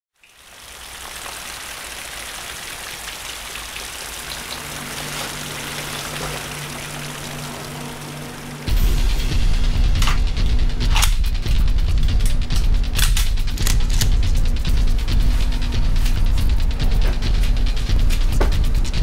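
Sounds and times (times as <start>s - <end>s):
rain-like hiss: 0.2s - 19.0s
low two-tone hum: 4.3s - 19.0s.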